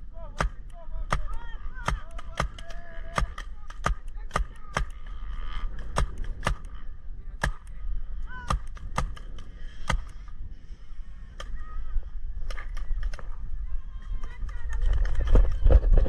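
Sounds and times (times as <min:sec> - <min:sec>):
paintball markers popping: 0:00.4 - 0:06.8.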